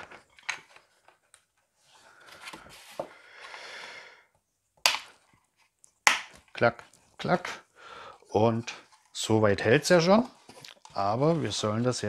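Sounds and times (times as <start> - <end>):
plastic parts scraping and rubbing: 9.9 - 12.0.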